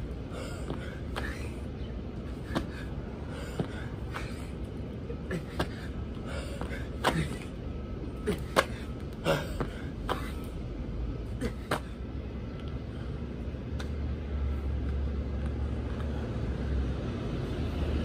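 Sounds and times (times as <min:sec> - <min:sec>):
low outdoor rumble: 0:00.0 - 0:18.0
hard breaths: 0:00.2 - 0:04.6, 0:05.2 - 0:07.5.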